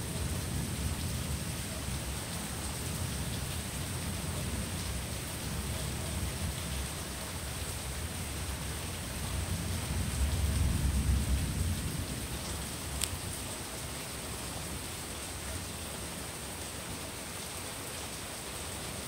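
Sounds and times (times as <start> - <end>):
steady rain: 0.0 - 19.0
distant thunder rumble: 9.4 - 13.0.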